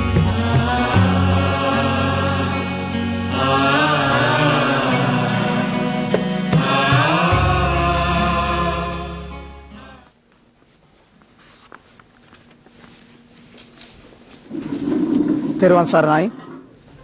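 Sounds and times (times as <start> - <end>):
theme music with chanted voices: 0.0 - 10.1.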